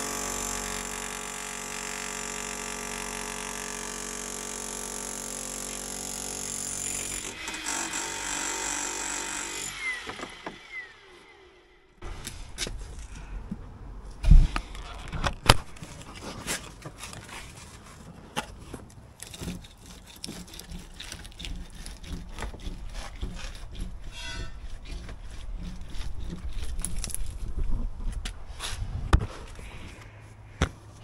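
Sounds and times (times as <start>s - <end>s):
brick and mortar cracking: 18.4s - 27.8s
metal squeal: 24.0s - 25.0s.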